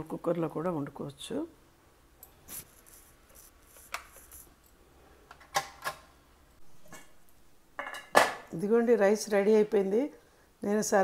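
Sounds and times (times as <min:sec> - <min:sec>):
faint hiss: 0:01.2 - 0:05.2.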